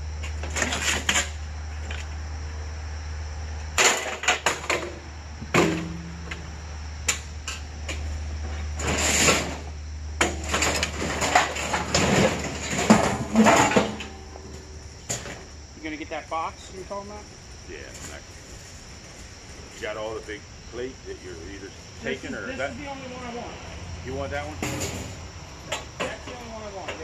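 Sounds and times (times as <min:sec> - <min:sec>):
steady low hum: 0:00.0 - 0:27.0
hard items knocking and clattering: 0:10.2 - 0:15.4.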